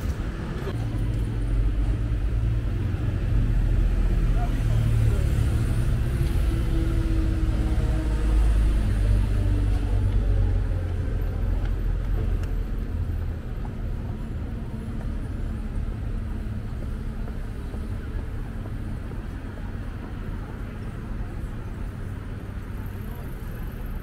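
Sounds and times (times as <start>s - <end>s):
passing vehicle engine rumble: 0.0s - 24.0s
road traffic hum: 0.0s - 24.0s.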